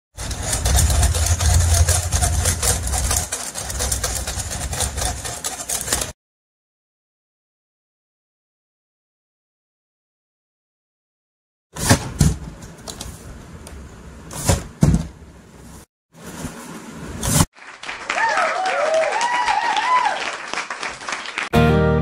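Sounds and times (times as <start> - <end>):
plastic toys handled on a table: 0.2 - 6.1.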